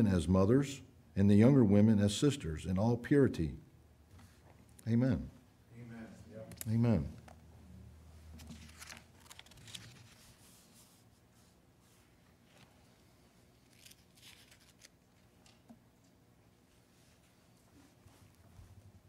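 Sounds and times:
thin paper pages rustling: 8.3s - 11.1s, 13.5s - 15.3s.

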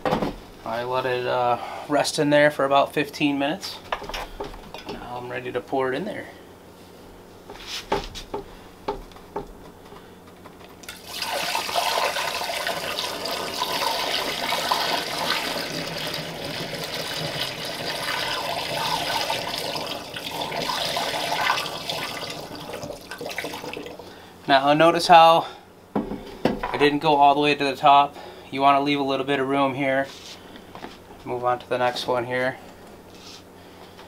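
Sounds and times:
liquid pouring through a funnel: 10.8s - 24.2s.

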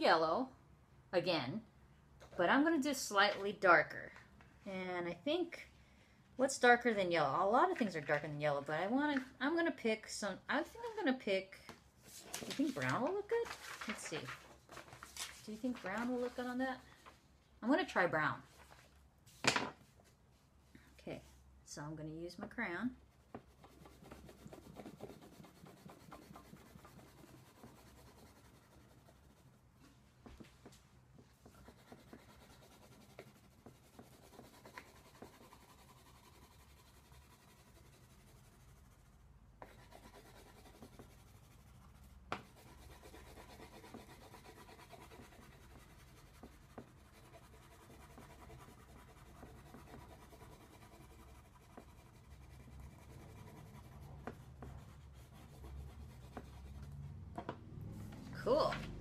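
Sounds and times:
crayon scratching on paper: 23.2s - 29.6s, 31.4s - 57.0s.

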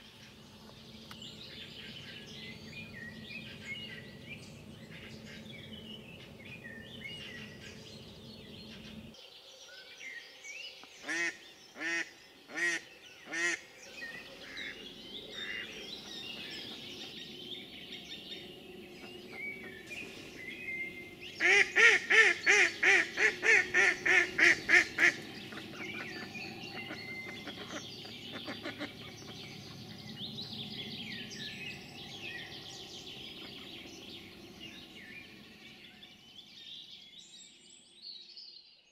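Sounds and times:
songbirds chirping: 0.0s - 38.9s.

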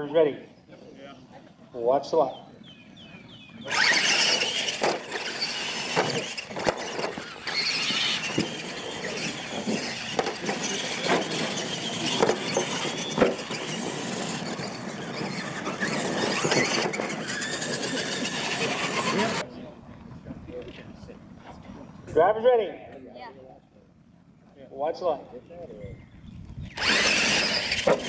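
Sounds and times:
electric motors whining: 2.7s - 19.4s, 26.4s - 28.0s
tyres scrabbling on dirt: 3.1s - 19.4s, 26.7s - 28.0s
toy trucks landing thuds: 3.7s - 19.4s, 26.7s - 28.0s.

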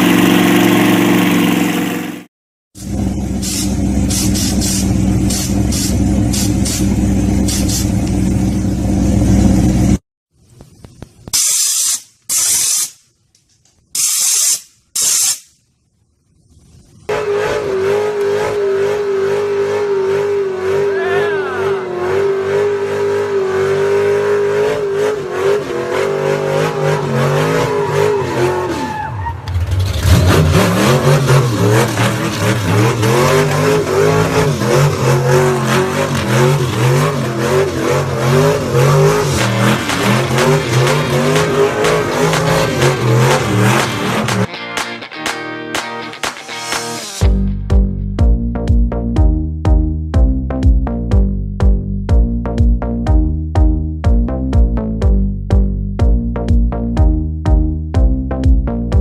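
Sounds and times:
loud hissing bursts: 2.8s - 8.0s, 11.3s - 13.1s, 13.9s - 15.6s
car engine revving high: 17.1s - 44.5s.

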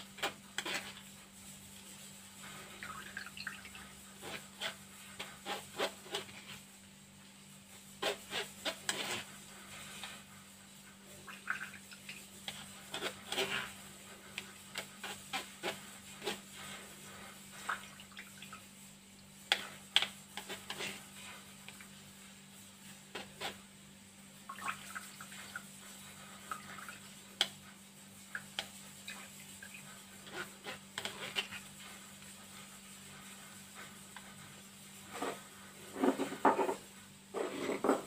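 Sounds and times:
scraping and tapping on sieve: 0.0s - 6.8s, 7.5s - 23.7s, 24.4s - 38.0s
wet liquid sounds: 11.0s - 22.0s, 24.4s - 31.9s.

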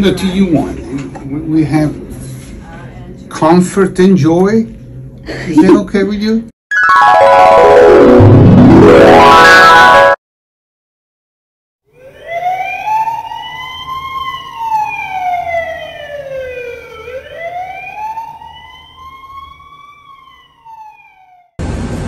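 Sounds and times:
emergency vehicle siren wailing: 11.9s - 21.6s.

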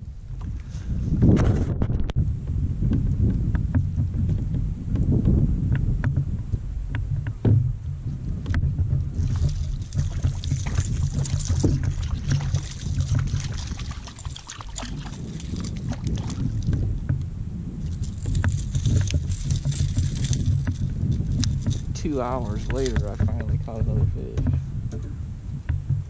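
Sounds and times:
wind rumbling on microphone: 0.0s - 26.0s
water lapping against kayak hull: 8.2s - 26.0s.

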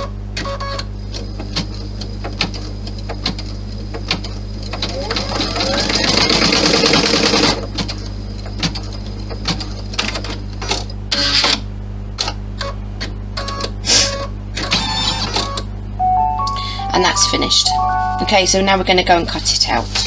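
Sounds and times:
embroidery machine stitching: 4.7s - 7.6s.

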